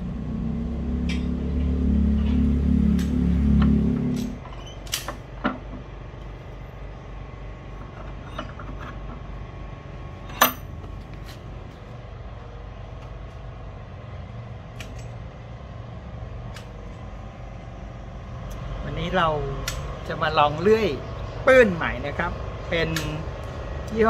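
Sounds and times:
steady low rumble: 0:00.0 - 0:24.0
metal vise clank: 0:07.8 - 0:09.2, 0:10.2 - 0:10.7.

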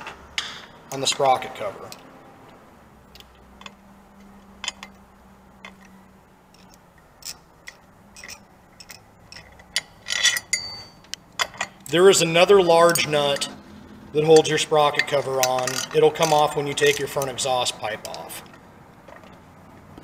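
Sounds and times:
metal clicks of hand tools: 0:03.1 - 0:05.0, 0:05.6 - 0:12.0, 0:14.4 - 0:19.4
ringing metal ping: 0:10.4 - 0:11.0.

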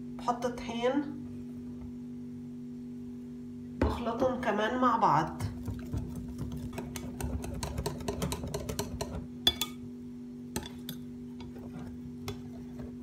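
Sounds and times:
whisk tapping glass bowl: 0:05.4 - 0:09.9, 0:10.6 - 0:13.0.

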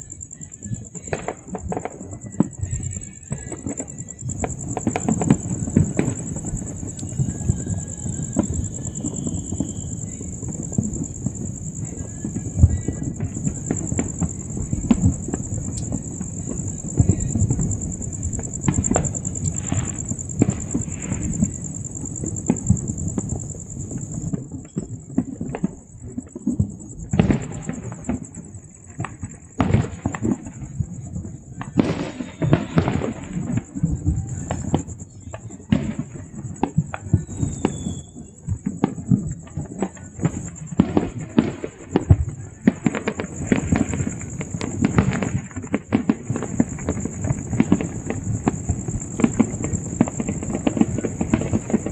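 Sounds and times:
steady high-pitched whine: 0:00.0 - 0:24.4
fireworks bangs and pops: 0:00.0 - 0:51.9.

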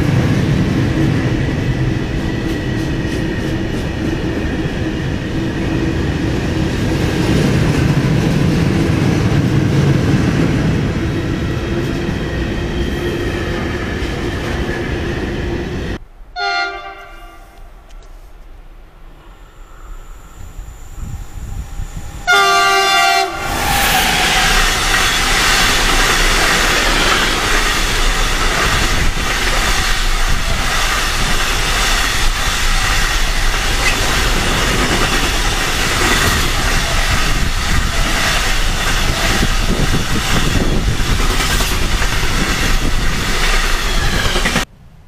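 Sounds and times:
freight train wheels rumbling: 0:00.0 - 0:16.0, 0:19.0 - 0:44.7
train horn blast: 0:16.4 - 0:17.8, 0:22.2 - 0:23.7.

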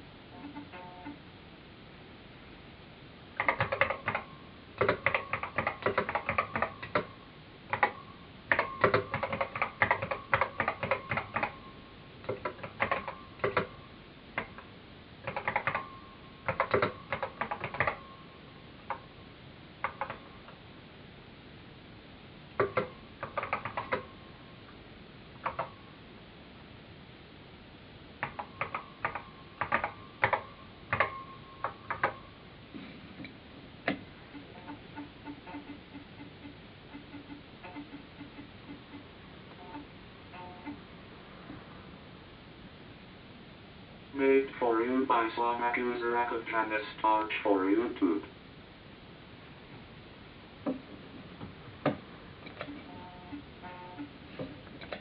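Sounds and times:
keyboard key clicks: 0:03.4 - 0:07.1, 0:07.7 - 0:11.6, 0:16.5 - 0:18.0, 0:28.2 - 0:32.2.

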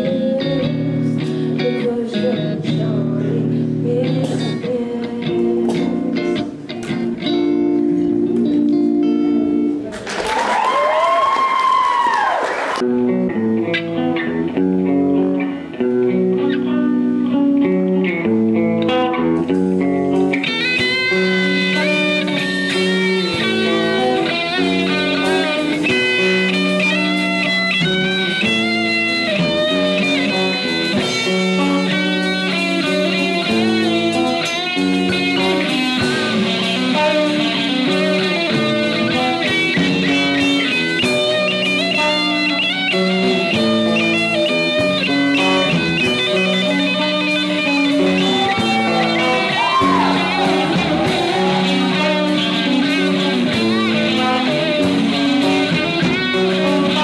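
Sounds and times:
drum kit: 0:00.0 - 0:57.0
electric guitar: 0:00.0 - 0:57.0
higher melody line: 0:12.8 - 0:57.0.

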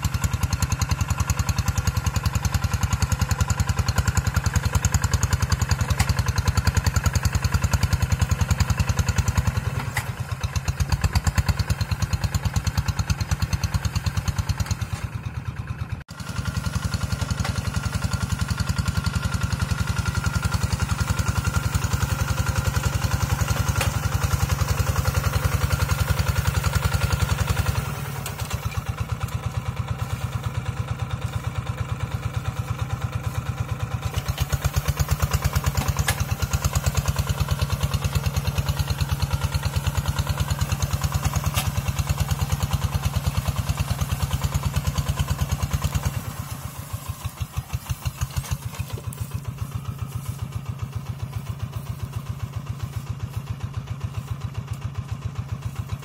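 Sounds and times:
diesel engine running under load: 0:00.0 - 0:56.0.

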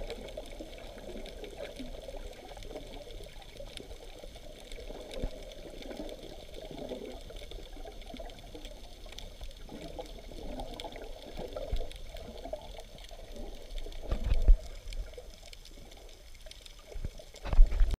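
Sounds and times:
underwater sloshing and bubbling: 0:00.0 - 0:18.0.

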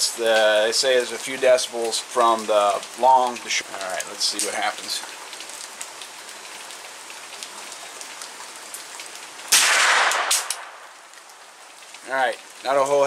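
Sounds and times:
rain hissing: 0:00.0 - 0:13.0
suppressed gunshot: 0:09.5 - 0:10.8.

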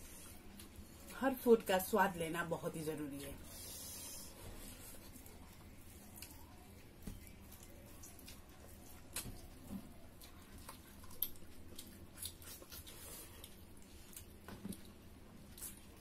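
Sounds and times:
fingers squishing food on plates: 0:03.4 - 0:16.0
chewing clicks: 0:10.2 - 0:15.0.

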